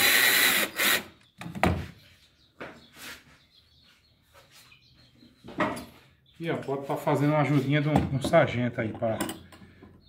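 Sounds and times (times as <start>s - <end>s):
cordless drill running: 0.0s - 1.1s.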